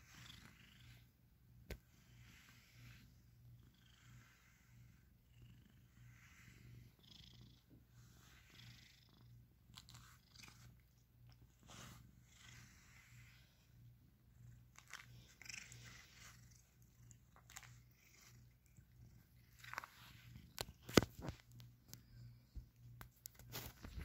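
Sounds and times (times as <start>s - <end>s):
cat purring: 0.0s - 22.6s
brush swishing through fur: 11.5s - 13.7s.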